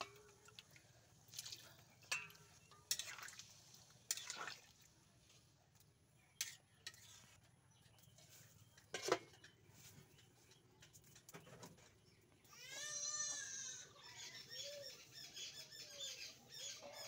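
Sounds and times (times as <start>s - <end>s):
metal spatula clinking on pot: 2.0s - 3.3s, 8.8s - 11.0s.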